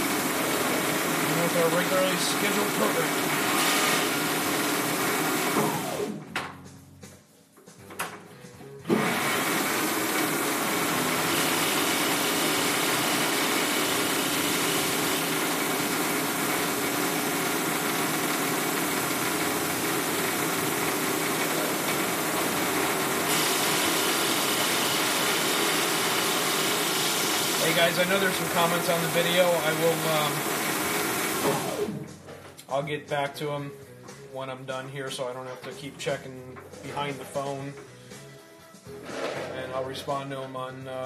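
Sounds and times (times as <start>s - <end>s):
cutting tool on workpiece: 0.0s - 4.5s, 21.6s - 32.0s
metal lathe running: 0.0s - 6.2s, 8.9s - 32.0s.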